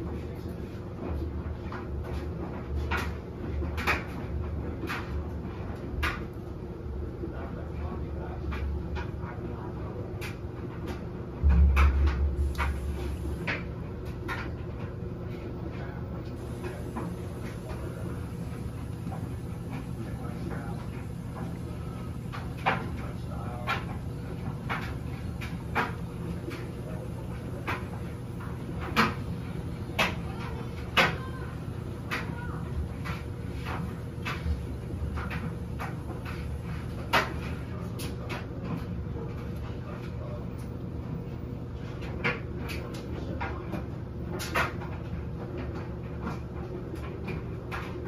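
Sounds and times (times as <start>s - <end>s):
washing machine motor hum: 0.0s - 48.0s
clothes knocking in drum: 11.4s - 13.2s.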